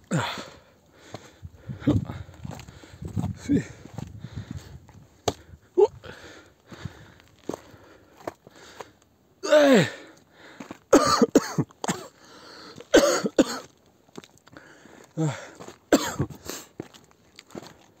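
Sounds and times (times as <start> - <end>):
person breathing: 0.2 - 10.8, 12.1 - 12.9, 14.5 - 15.7
person coughing: 10.9 - 12.2, 12.9 - 13.7, 15.3 - 16.4.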